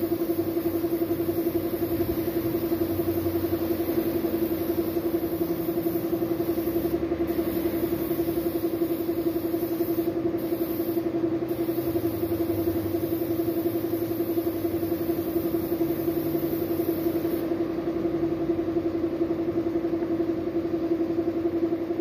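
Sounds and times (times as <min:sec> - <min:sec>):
spray gun hissing: 0:00.0 - 0:17.5
air compressor pulsing hum: 0:00.0 - 0:22.0.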